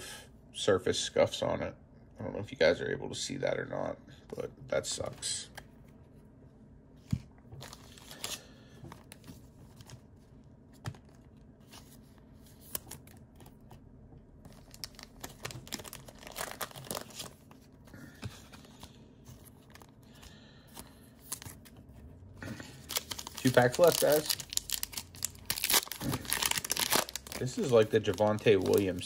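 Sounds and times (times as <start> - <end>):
cards rustling: 7.1 - 13.8, 14.4 - 29.0
crinkling: 14.4 - 29.0.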